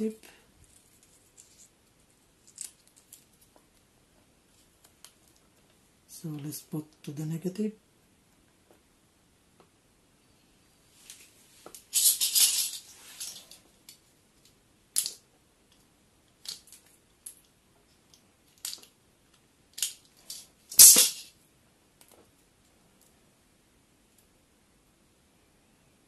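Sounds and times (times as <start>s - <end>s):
electrical wires rustling and crinkling: 0.0s - 7.1s, 10.9s - 21.4s.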